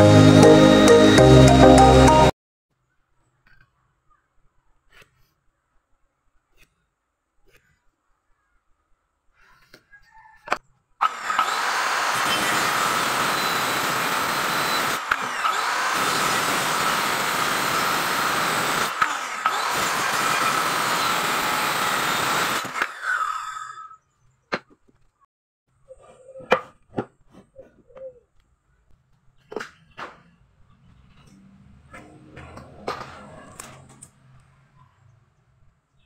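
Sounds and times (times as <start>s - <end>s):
circular saw cutting wood: 11.0s - 24.0s.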